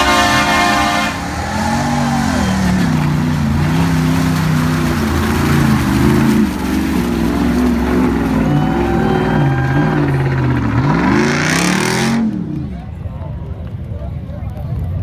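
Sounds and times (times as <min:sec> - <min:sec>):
horn blast: 0:00.0 - 0:03.0
truck engine revving: 0:00.0 - 0:13.0.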